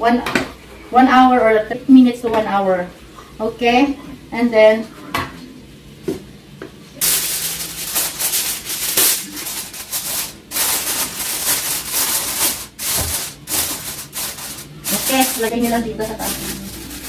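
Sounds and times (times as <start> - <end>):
aluminium foil crinkling: 7.0 - 17.0.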